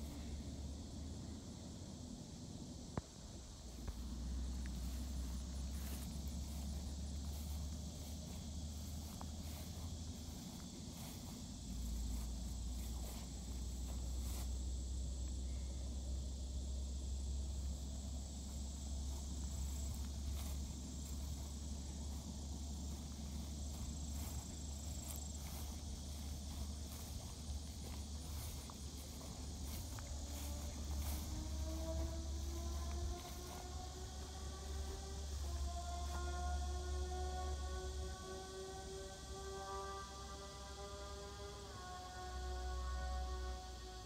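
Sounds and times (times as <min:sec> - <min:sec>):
insects buzzing: 0:00.0 - 0:44.0
footsteps through grass: 0:03.7 - 0:14.6, 0:18.2 - 0:36.4.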